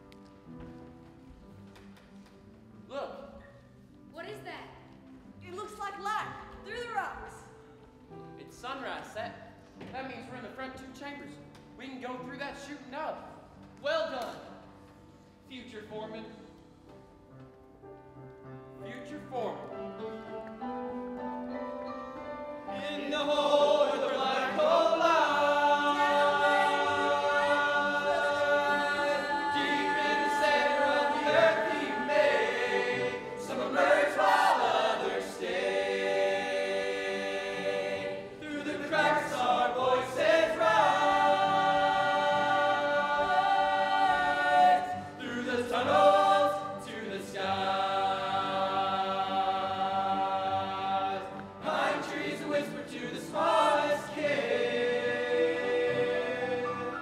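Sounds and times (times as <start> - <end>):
cast singing in chorus: 22.8 - 57.0.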